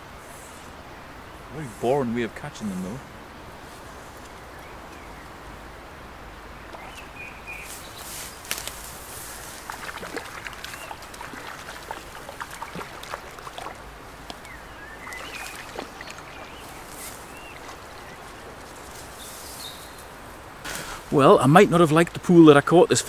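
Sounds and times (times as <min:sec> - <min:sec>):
light ticks and rustles: 0:03.6 - 0:05.4, 0:06.7 - 0:21.2.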